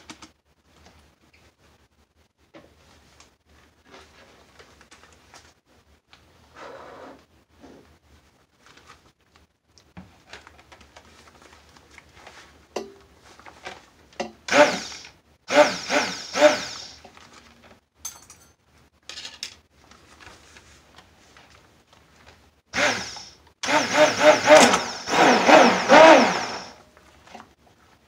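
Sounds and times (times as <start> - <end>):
stick blender whine: 14.5 - 17.1, 22.7 - 26.8.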